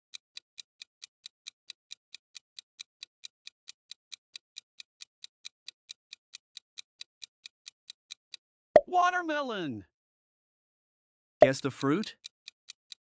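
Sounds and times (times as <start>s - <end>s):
countdown timer ticking: 8.8s - 9.6s, 11.4s - 12.3s.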